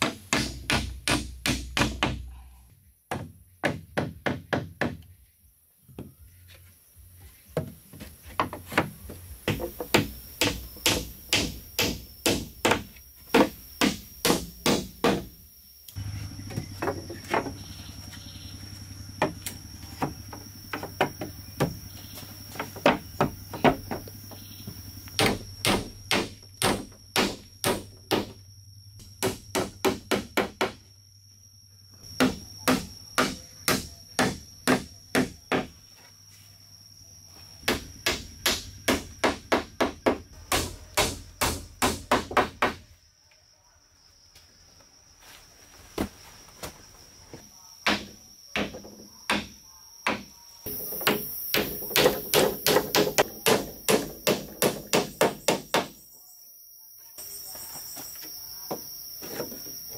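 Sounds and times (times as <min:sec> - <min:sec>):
hammer nailing wooden planks: 0:00.0 - 0:02.3, 0:03.1 - 0:05.0, 0:08.4 - 0:15.3, 0:25.2 - 0:28.4, 0:29.2 - 0:30.8, 0:32.2 - 0:35.7, 0:37.7 - 0:42.8, 0:50.9 - 0:56.0.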